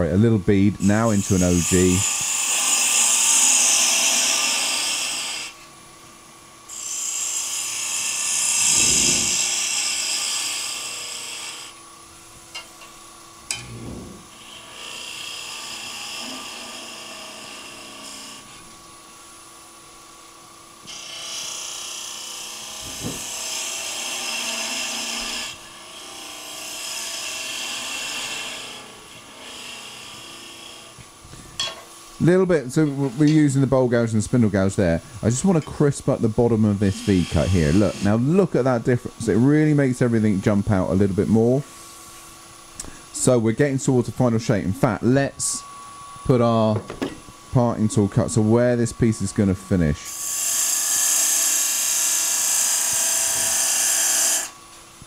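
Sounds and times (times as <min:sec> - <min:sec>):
lathe humming: 0:00.0 - 0:05.6, 0:06.5 - 0:20.2, 0:20.8 - 0:54.7
gouge cutting wood on a lathe: 0:00.8 - 0:05.6, 0:06.7 - 0:11.8, 0:14.3 - 0:18.5, 0:20.9 - 0:31.0, 0:32.3 - 0:41.4, 0:47.5 - 0:54.6.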